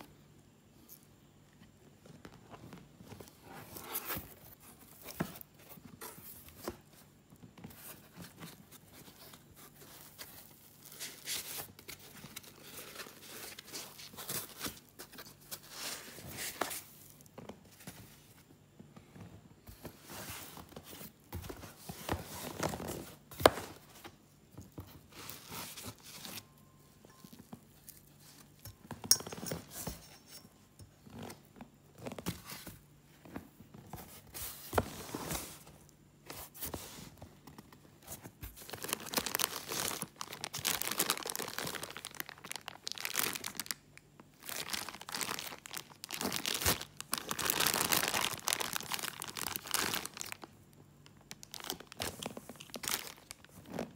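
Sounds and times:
cardboard and foam packing handled: 1.5s - 53.9s
plastic bags crinkling: 38.6s - 53.9s.

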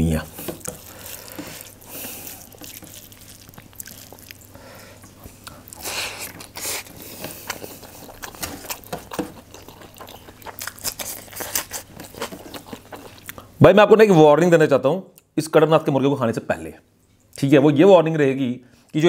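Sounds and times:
chewing with wet mouth smacks: 0.4s - 13.5s.

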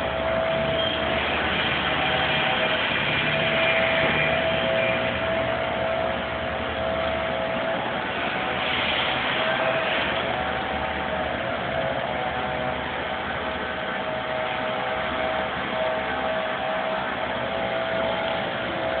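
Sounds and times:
distant machine engines running: 0.0s - 19.0s
faint steady whine: 0.0s - 19.0s.

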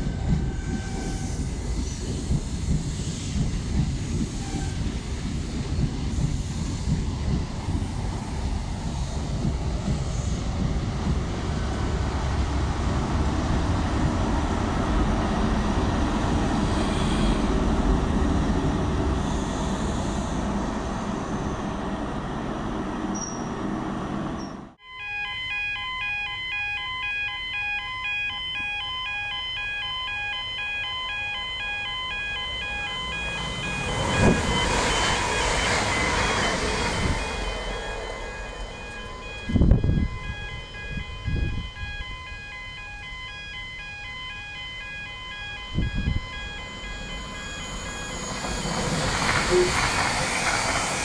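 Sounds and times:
train passing with wheel rush: 0.0s - 24.8s, 27.0s - 51.0s
diesel train engine and wheels: 0.0s - 51.0s
electric train traction tones: 27.7s - 51.0s.

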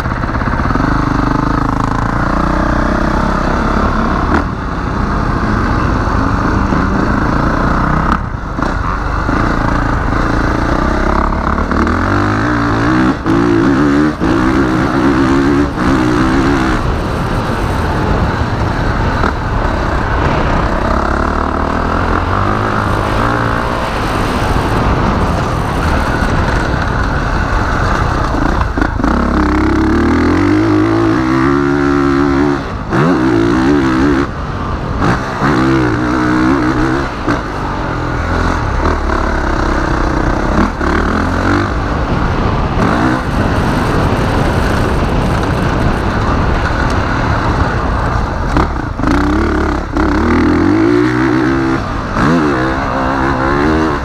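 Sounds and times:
motorcycle engine revving: 0.0s - 54.0s
wind on microphone: 3.2s - 54.0s.

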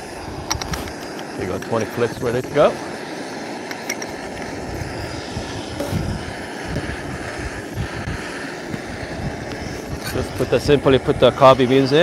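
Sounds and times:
gas stove burner roaring: 0.0s - 12.0s
wind rumbling on microphone: 3.7s - 12.0s.

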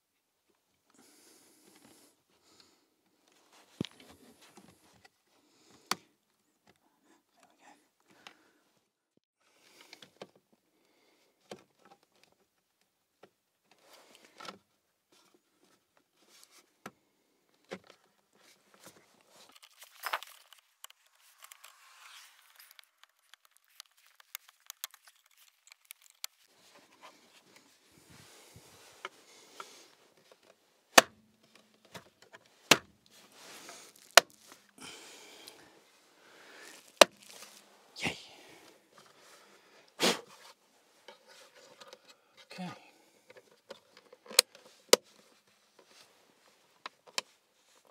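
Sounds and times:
plastic clicks and rustling: 17.5s - 27.7s, 43.2s - 46.0s
loud plastic snaps: 30.9s - 32.9s.

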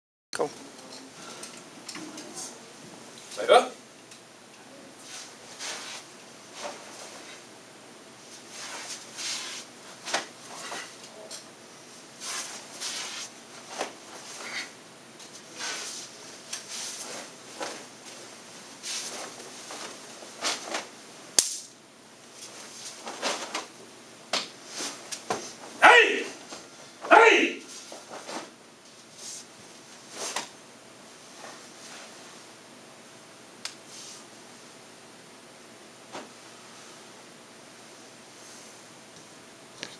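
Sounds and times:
cloth swishing: 5.1s - 7.4s, 8.4s - 10.7s, 12.2s - 14.5s, 16.7s - 20.9s
uniform swishing and snapping: 22.4s - 23.7s.

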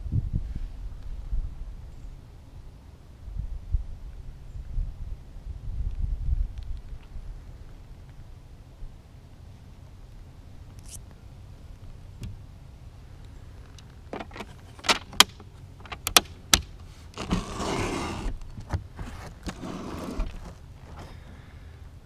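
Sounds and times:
sharp clicks and knocks on wood: 13.7s - 16.7s
scraping: 19.0s - 21.2s.

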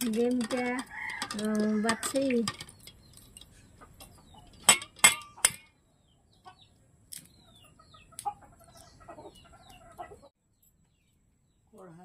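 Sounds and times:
small birds chirping: 0.9s - 12.0s
chickens clucking: 2.7s - 5.6s, 6.2s - 10.4s.

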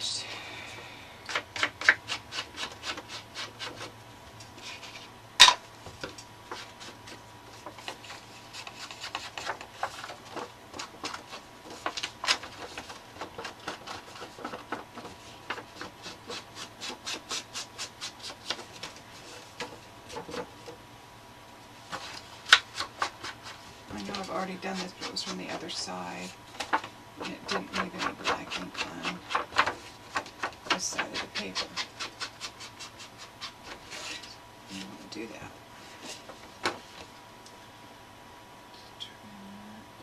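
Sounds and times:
ink pad rubbing on paper: 1.3s - 3.9s, 6.5s - 20.3s, 21.9s - 26.3s, 27.2s - 34.3s.

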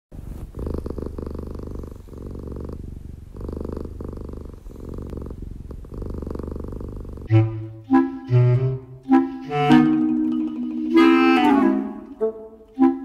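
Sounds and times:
cat purring: 0.1s - 7.8s.

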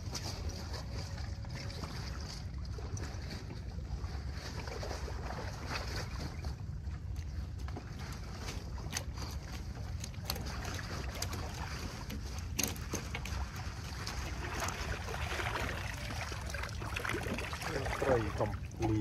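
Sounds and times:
steady low rumble: 0.0s - 19.0s
water splashing and sloshing: 0.0s - 19.0s
water streaming off net: 13.3s - 19.0s.

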